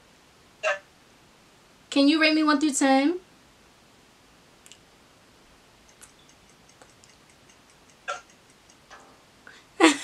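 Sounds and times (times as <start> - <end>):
faint rapid ticking: 5.8 - 9.5.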